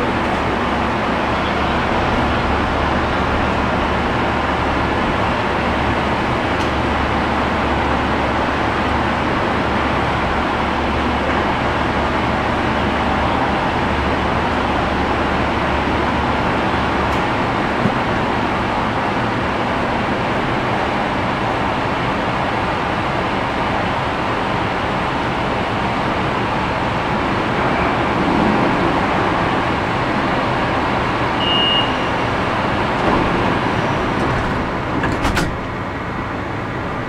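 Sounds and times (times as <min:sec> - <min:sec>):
train running noise: 0:00.0 - 0:37.0.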